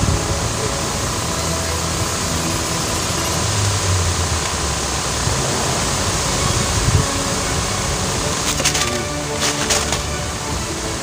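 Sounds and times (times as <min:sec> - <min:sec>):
wind buffeting microphone: 0:00.0 - 0:00.8, 0:03.5 - 0:08.4
low rumbling wind gusts: 0:00.0 - 0:11.0.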